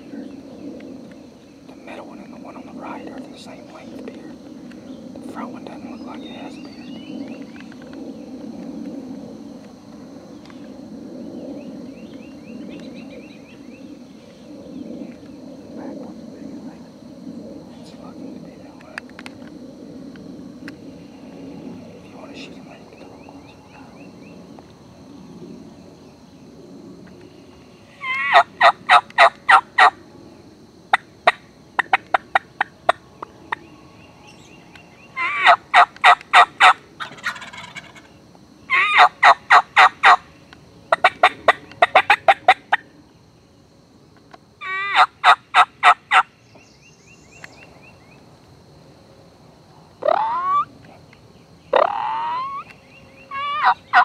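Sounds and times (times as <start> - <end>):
short rising turkey calls: 27.9 - 29.9, 35.2 - 38.1, 50.0 - 50.7, 51.7 - 52.7, 53.3 - 54.0
wild turkeys gobbling: 28.0 - 29.9, 30.9 - 33.0, 35.2 - 40.2, 40.9 - 42.8, 44.6 - 46.2, 50.0 - 50.7, 51.7 - 52.7, 53.3 - 54.0.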